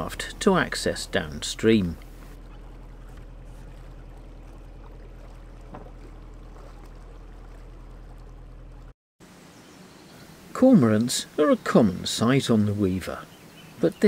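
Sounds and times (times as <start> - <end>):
boat diesel engine humming: 0.0 - 9.0.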